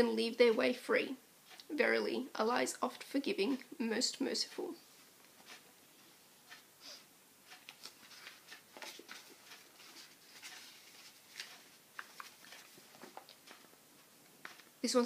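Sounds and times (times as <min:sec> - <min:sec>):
book pages rustling: 0:07.5 - 0:13.8, 0:14.4 - 0:14.8.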